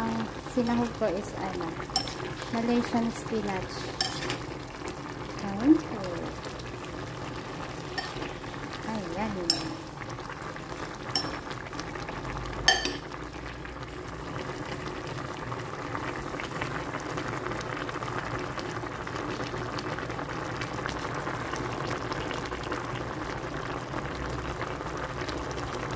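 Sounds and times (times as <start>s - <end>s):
soup boiling and bubbling: 0.0s - 25.9s
ladle clinking against pot: 1.9s - 2.2s, 4.0s - 4.4s, 7.9s - 8.3s, 9.5s - 9.8s, 11.2s - 11.5s, 12.7s - 13.1s.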